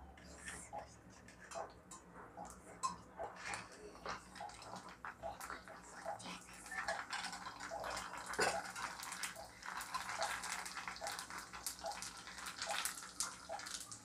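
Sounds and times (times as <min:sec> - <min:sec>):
food sizzling in hot oil: 0:04.2 - 0:14.0.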